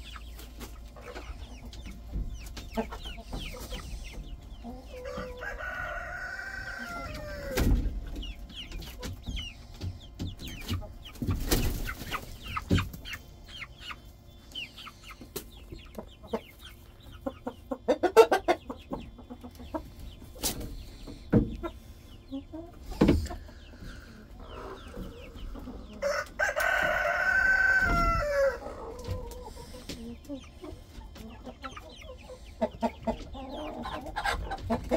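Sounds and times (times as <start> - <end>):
chickens clucking: 0.0 - 34.9
rooster crowing: 5.0 - 7.6, 26.0 - 28.8.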